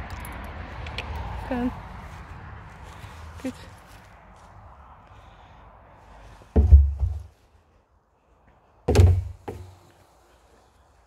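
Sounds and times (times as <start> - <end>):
heavy dull thuds: 6.5 - 7.4, 8.9 - 9.7.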